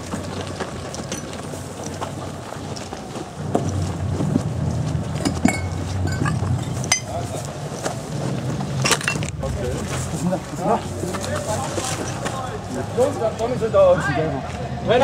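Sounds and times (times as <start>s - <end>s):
gear clicking and knocking: 0.0s - 9.4s
wind rumbling on microphone: 0.0s - 12.2s
hurried footsteps: 0.0s - 15.0s.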